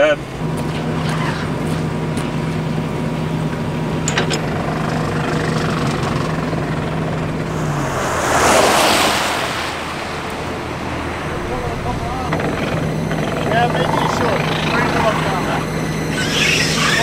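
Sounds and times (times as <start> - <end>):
truck engine idling: 0.0 - 17.0
rushing hiss: 7.3 - 12.3.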